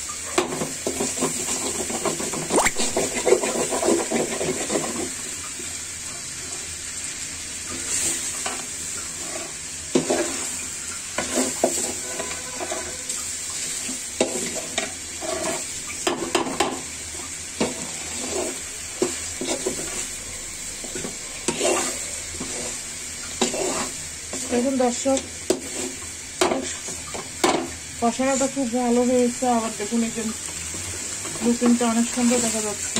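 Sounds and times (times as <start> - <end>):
food sizzling: 0.0 - 32.9
metal spatula scraping pan: 0.6 - 5.1, 7.8 - 13.2, 14.2 - 16.7, 17.6 - 20.1, 20.9 - 22.8, 23.4 - 24.5.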